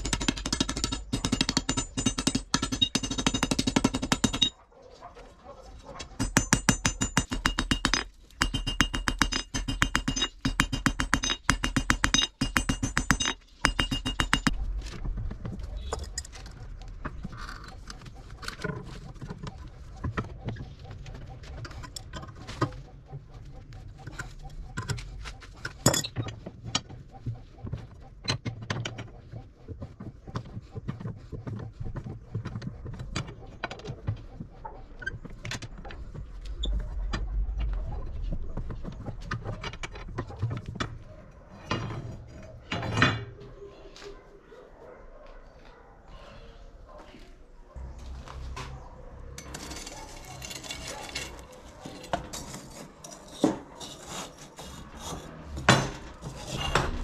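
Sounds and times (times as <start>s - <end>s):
hammer striking steel on anvil: 0.0s - 4.5s, 6.2s - 14.6s
clinks and scrapes of steel bar: 6.0s - 14.6s, 41.6s - 43.3s, 49.4s - 57.0s.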